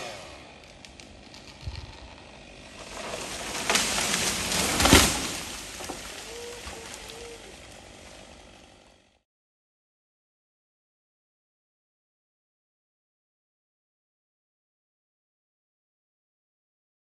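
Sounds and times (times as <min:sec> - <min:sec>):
branches crashing: 0:00.0 - 0:08.7
branches and brush rustling: 0:00.0 - 0:09.1
tree trunk thudding on ground: 0:02.7 - 0:07.1.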